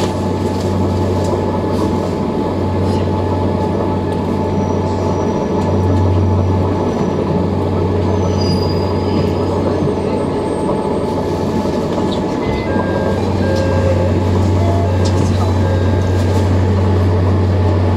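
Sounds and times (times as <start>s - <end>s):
train low hum: 0.0s - 17.9s
train running gear rumble: 0.0s - 17.9s
high-pitched wheel squeals: 8.2s - 9.4s.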